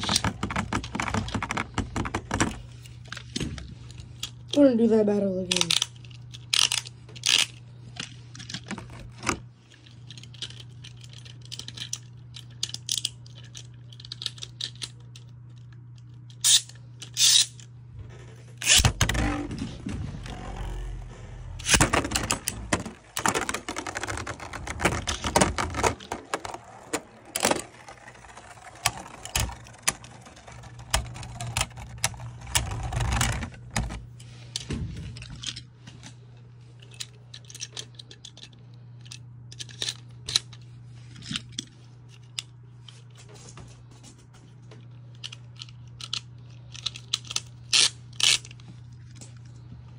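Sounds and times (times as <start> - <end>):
steady low hum: 0.0 - 49.9
spinning tops clattering and rattling: 21.6 - 33.4.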